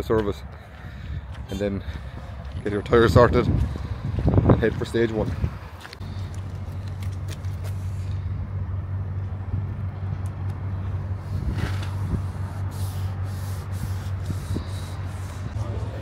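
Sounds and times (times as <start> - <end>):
vehicle engine idling: 5.6 - 16.0.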